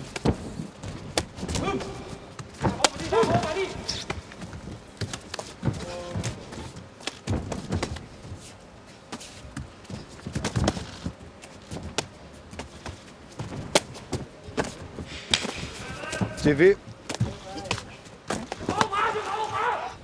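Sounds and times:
bare feet on canvas: 0:00.0 - 0:19.8
person shouting: 0:01.6 - 0:02.2, 0:18.6 - 0:20.0.

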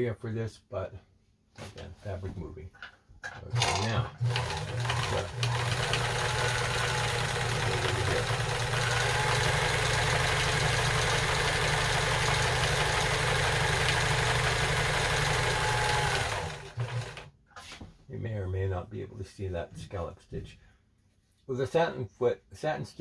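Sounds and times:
sewing machine running: 0:03.5 - 0:17.3.

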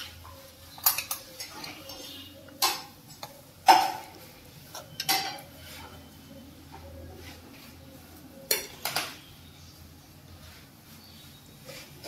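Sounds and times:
steel spoon scraping and clinking: 0:00.1 - 0:06.0.

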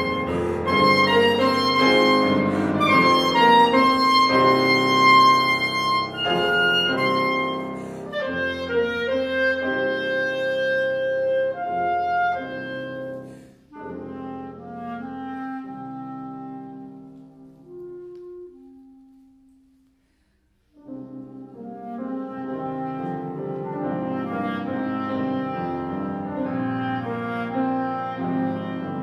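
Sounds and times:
clarinet: 0:00.0 - 0:19.9, 0:20.6 - 0:29.0
grand piano: 0:00.0 - 0:29.0.

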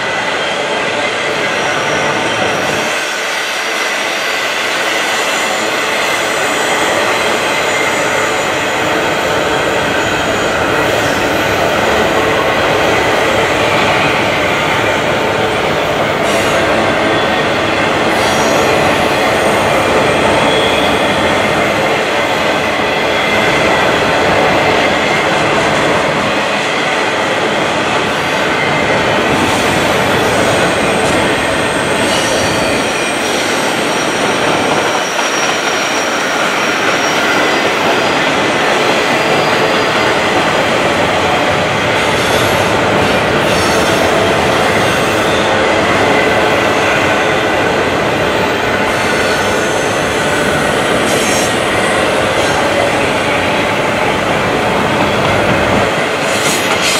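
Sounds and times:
train wheels rolling on rails: 0:00.0 - 0:56.9
high wheel squeals: 0:16.3 - 0:21.6, 0:30.6 - 0:38.3.

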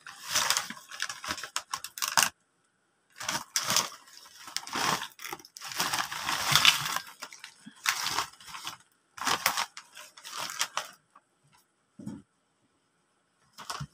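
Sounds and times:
snack bag crinkling: 0:00.0 - 0:02.3, 0:03.2 - 0:11.0
crisps poured into a bowl: 0:03.2 - 0:10.9.

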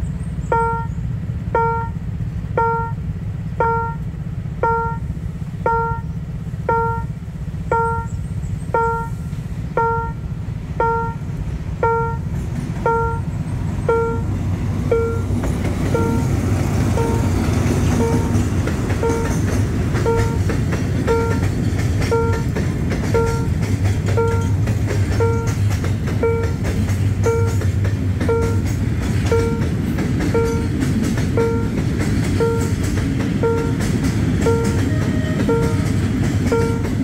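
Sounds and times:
freight train rumbling: 0:00.0 - 0:37.0
level-crossing warning bell: 0:00.5 - 0:01.0, 0:01.6 - 0:02.0, 0:02.6 - 0:04.0, 0:04.6 - 0:37.0
train wheels clattering: 0:11.8 - 0:37.0.

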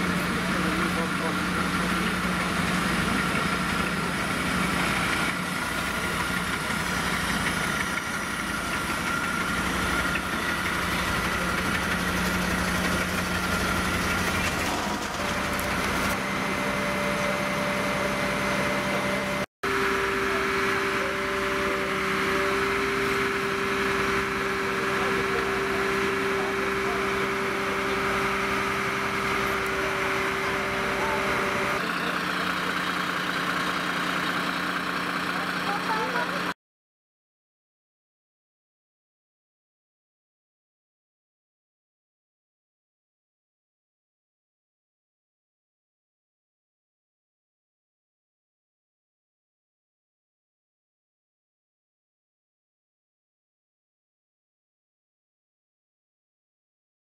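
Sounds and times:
diesel engine idling: 0:00.0 - 0:36.6.

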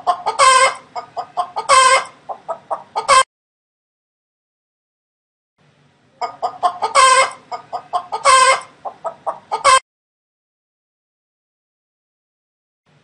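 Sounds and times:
hen clucking: 0:00.0 - 0:03.3, 0:06.2 - 0:09.8.

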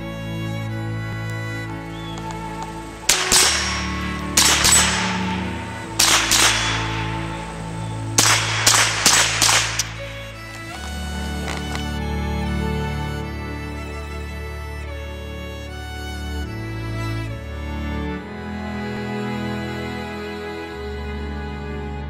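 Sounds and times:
background music: 0:00.0 - 0:22.0
rifle shots: 0:02.0 - 0:11.8.

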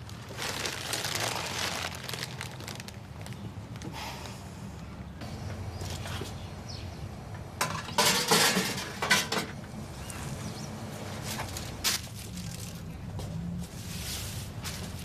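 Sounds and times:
dishes clinking and clattering: 0:07.6 - 0:09.6.

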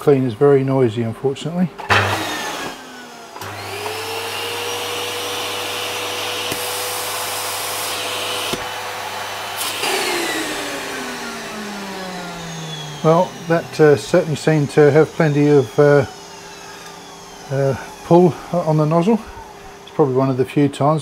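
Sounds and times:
vacuum cleaner whine: 0:00.0 - 0:21.0
hissing airflow: 0:06.2 - 0:20.6.

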